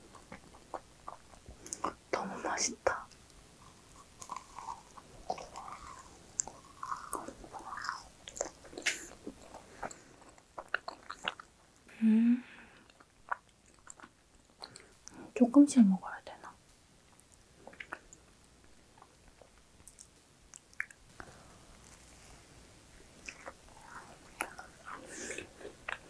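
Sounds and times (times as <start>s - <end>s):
chewing with mouth clicks: 0.1s - 2.0s, 3.1s - 11.9s, 12.8s - 15.2s, 17.1s - 21.0s, 23.1s - 26.0s.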